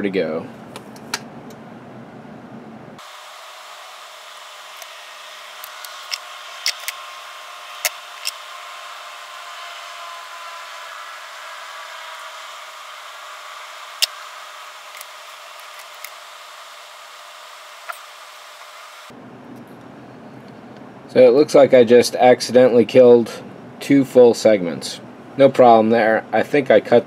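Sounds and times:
small parts clicking on workbench: 0:05.6 - 0:07.0.

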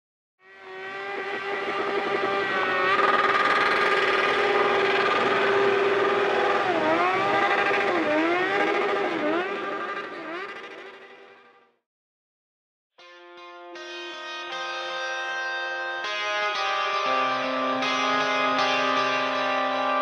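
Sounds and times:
engine-like drone: 0:00.4 - 0:11.8, 0:15.6 - 0:20.0.

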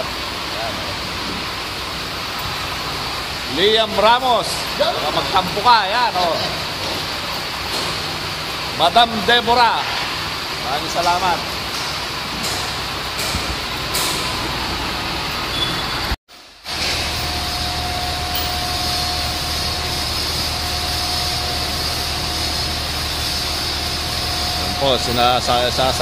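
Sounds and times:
thin steady whine: 0:14.4 - 0:26.0
truck engine low hum: 0:16.8 - 0:26.0.

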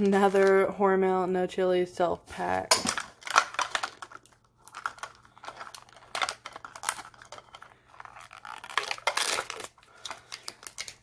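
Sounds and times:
plastic capsule clicking and crinkling: 0:02.7 - 0:11.0.

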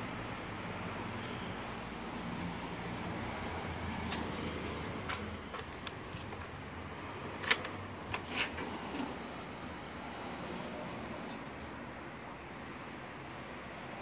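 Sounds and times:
fuel pump whirring: 0:08.1 - 0:11.4.

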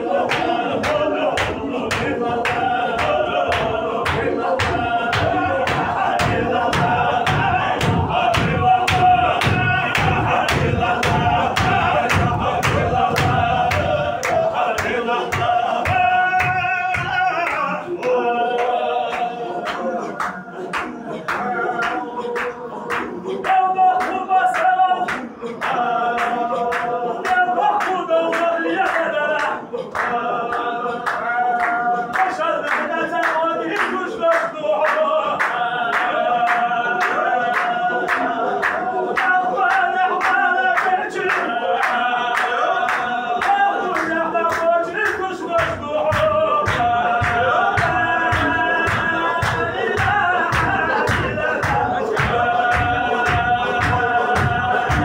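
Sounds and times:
men chanting in unison: 0:00.0 - 0:55.0
rhythmic hand claps: 0:00.0 - 0:55.0
heavy stamping thumps: 0:00.3 - 0:17.3, 0:45.6 - 0:55.0.

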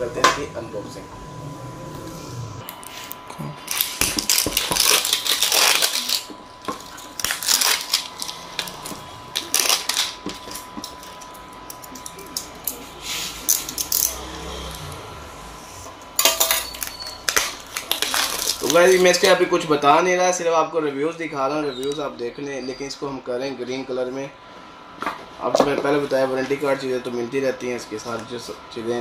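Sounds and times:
shrink-wrapped box rustling: 0:03.6 - 0:10.7, 0:16.8 - 0:19.2.

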